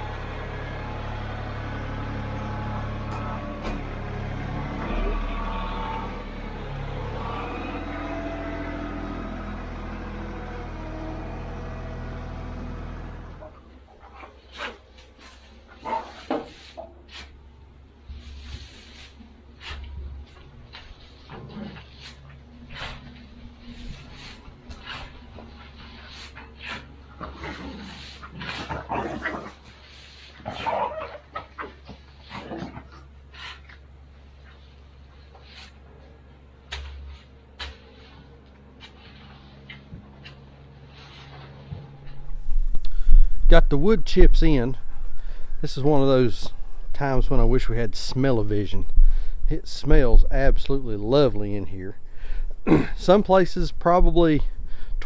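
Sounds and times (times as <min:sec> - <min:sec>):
tractor engine idling: 0:00.0 - 0:21.3
wood chips being scraped: 0:14.0 - 0:17.4, 0:18.1 - 0:33.8, 0:34.4 - 0:36.0, 0:36.7 - 0:42.2.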